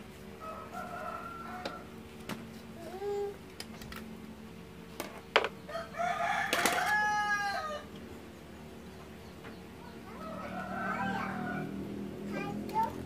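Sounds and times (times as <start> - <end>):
fainter rooster call: 0.4 - 2.0, 5.7 - 7.9, 10.0 - 11.8
rooster crowing: 0.4 - 2.0, 5.7 - 7.9, 10.1 - 11.8.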